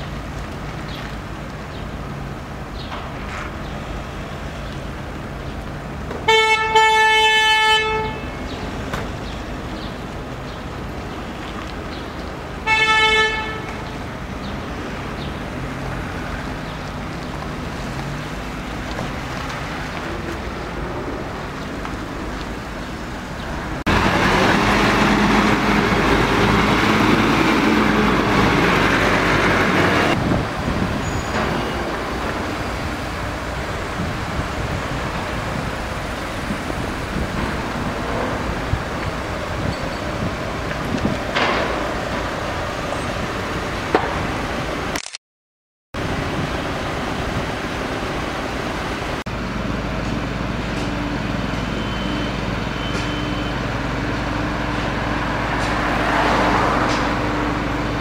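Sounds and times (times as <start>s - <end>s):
city street traffic: 0.0s - 45.2s, 46.0s - 58.0s
car horn: 6.2s - 8.6s, 12.6s - 13.8s.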